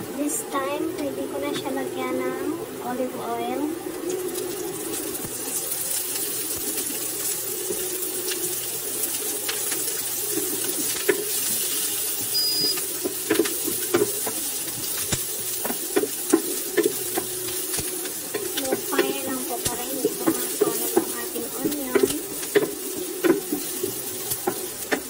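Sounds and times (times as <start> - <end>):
onions sizzling in a pan: 0.2 - 25.0
wooden spoon knocking on pan: 12.6 - 14.4, 15.1 - 17.3, 18.3 - 25.0.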